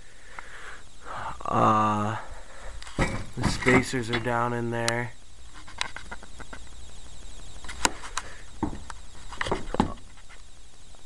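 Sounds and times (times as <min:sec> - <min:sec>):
low hiss: 0:00.0 - 0:11.0.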